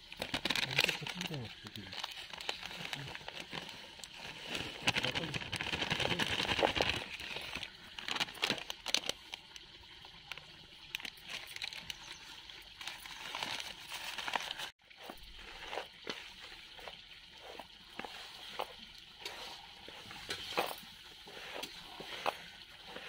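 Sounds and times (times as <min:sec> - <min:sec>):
plastic packets crinkling: 0:00.0 - 0:16.0.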